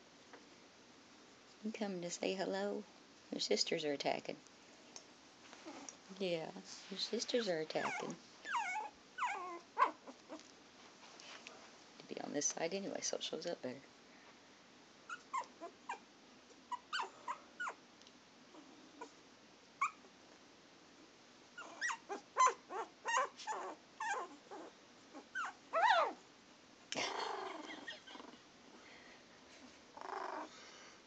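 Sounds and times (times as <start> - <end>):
puppies squeaking and crying: 7.8 - 10.0, 21.6 - 26.2.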